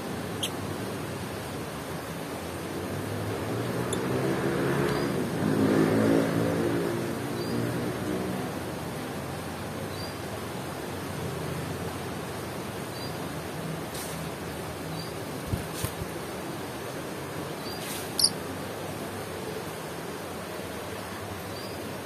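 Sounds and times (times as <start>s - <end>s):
motor vehicle passing by: 2.6s - 9.6s.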